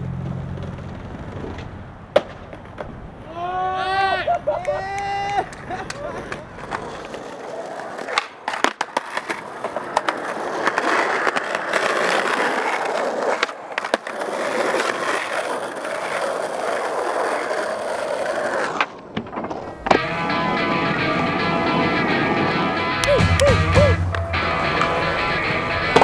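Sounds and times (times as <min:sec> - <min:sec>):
skateboard wheels rolling on asphalt: 0:00.0 - 0:23.0, 0:24.0 - 0:26.0
skateboard clacks: 0:00.1 - 0:03.0, 0:04.5 - 0:26.0
music: 0:19.9 - 0:26.0.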